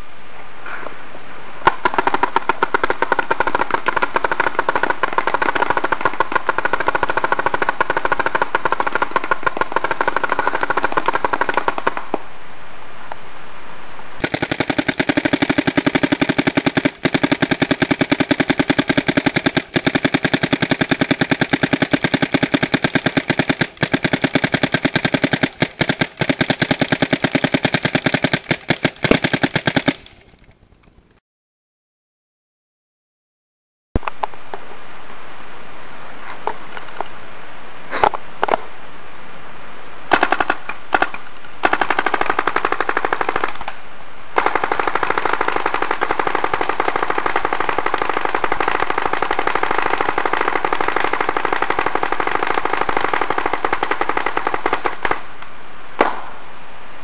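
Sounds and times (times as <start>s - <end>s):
paintball markers rapid firing: 1.6s - 12.2s, 14.2s - 30.2s, 40.1s - 43.8s, 44.4s - 55.2s.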